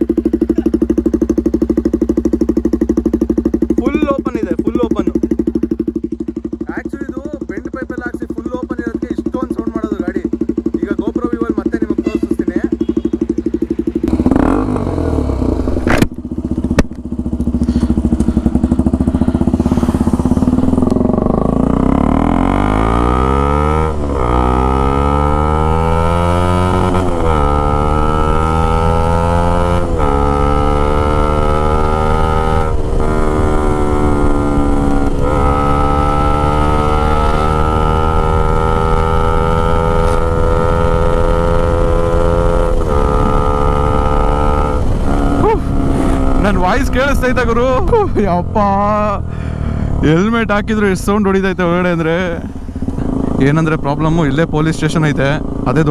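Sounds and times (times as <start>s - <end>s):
motorcycle engine accelerating: 0.0s - 55.9s.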